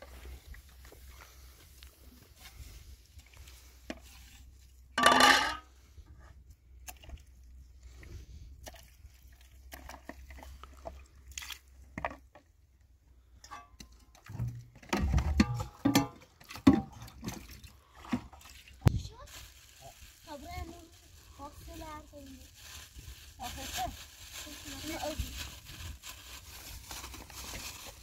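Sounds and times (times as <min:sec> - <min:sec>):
knocks and clinks of handling: 0:05.0 - 0:05.6.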